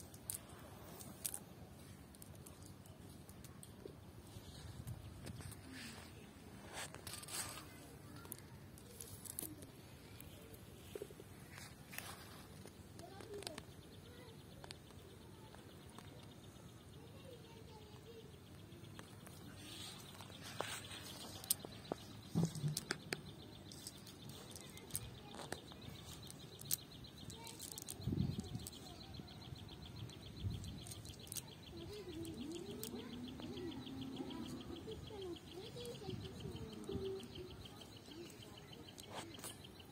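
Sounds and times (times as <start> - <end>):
net clicks and rustles: 0.0 - 13.7, 18.8 - 33.8.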